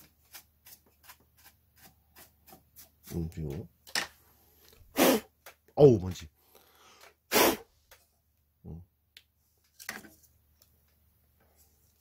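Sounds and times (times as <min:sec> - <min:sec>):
short scrape: 0:07.3 - 0:07.7.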